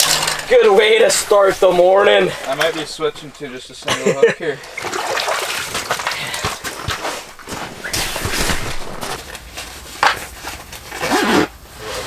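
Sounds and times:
fish splashing in water: 0:04.6 - 0:06.8.

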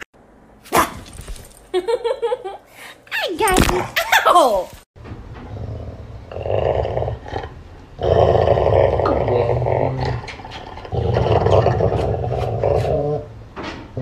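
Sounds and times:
dog growling: 0:05.5 - 0:13.3.

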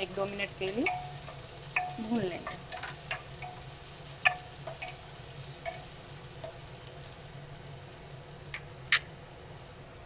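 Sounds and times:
vegetables sizzling in a pot: 0:00.0 - 0:10.0
spatula stirring: 0:00.4 - 0:07.2.

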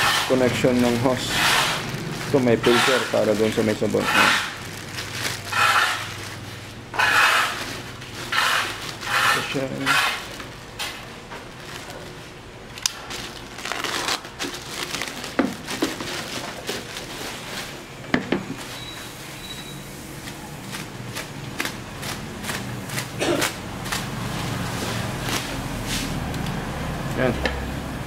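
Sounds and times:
plastic wrapping crinkling: 0:00.3 - 0:17.9.

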